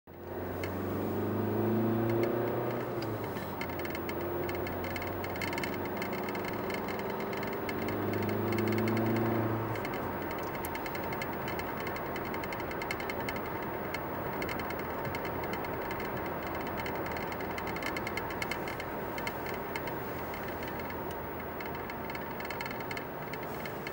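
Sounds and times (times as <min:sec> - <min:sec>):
car engine hum: 0:00.1 - 0:23.9
tyre and road noise: 0:00.1 - 0:23.9
fast ticking rattle: 0:00.2 - 0:23.9.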